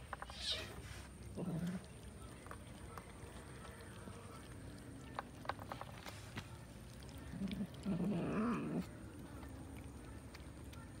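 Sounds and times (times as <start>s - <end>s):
cat growling: 0.4s - 2.0s, 7.3s - 9.2s.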